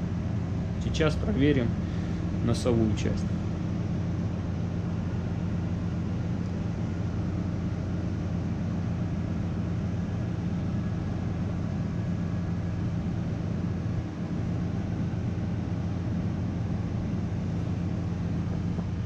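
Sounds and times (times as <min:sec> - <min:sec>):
engine room machinery humming: 0:00.0 - 0:19.0.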